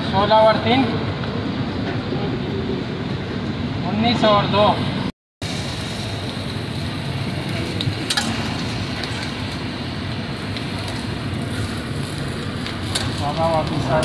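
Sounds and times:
griddle sizzling and hissing: 5.4 - 14.0.

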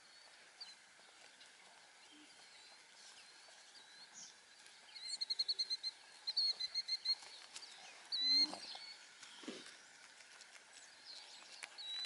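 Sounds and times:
high-pitched animal calls: 8.2 - 8.8.

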